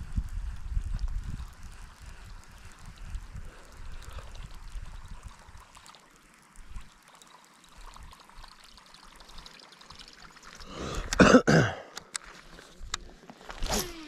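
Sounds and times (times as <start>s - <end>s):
person clearing throat: 11.1s - 11.9s.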